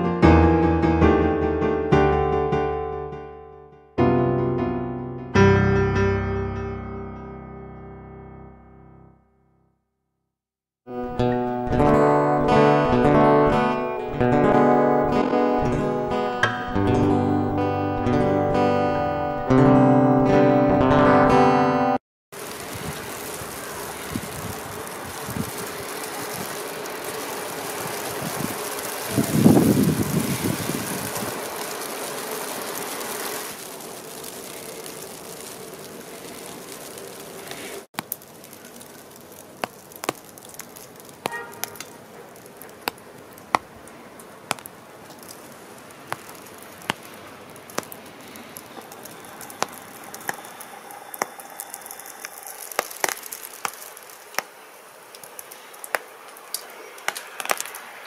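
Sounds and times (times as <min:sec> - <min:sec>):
vehicle passing close: 0:22.4 - 0:37.9
tyres hissing on slushy road: 0:22.4 - 0:58.0.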